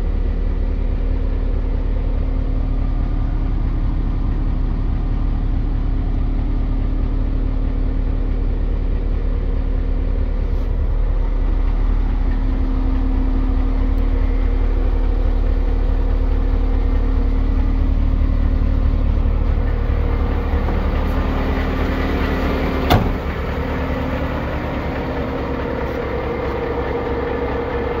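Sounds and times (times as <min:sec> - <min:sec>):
diesel truck engine idling: 0:00.0 - 0:28.0
sharp bang: 0:22.9 - 0:23.4.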